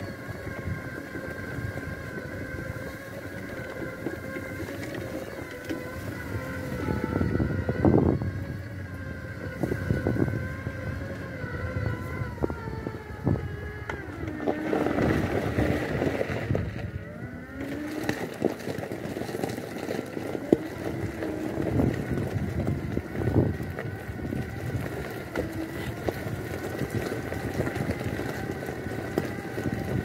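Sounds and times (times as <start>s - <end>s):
electric motors whining: 0.0s - 30.0s
tyres rumbling on gravel: 0.0s - 30.0s.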